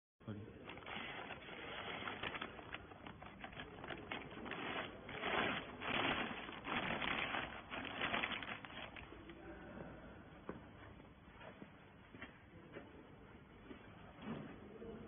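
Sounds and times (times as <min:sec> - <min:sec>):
plastic bag crinkling: 0:00.6 - 0:09.2.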